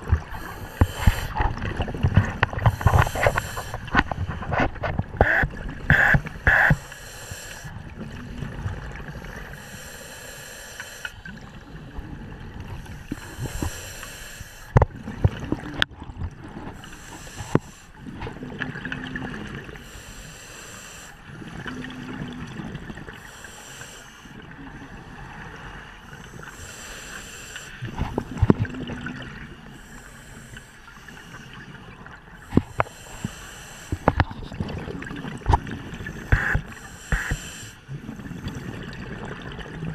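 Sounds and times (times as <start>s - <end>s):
hissing inhale through regulator: 0.2s - 1.4s, 2.4s - 8.5s, 9.1s - 11.7s, 12.7s - 14.9s, 16.7s - 18.0s, 19.8s - 21.4s, 23.1s - 24.4s, 25.0s - 28.5s, 29.6s - 34.3s, 35.9s - 38.9s
exhaled bubbles rushing: 37.9s - 39.9s.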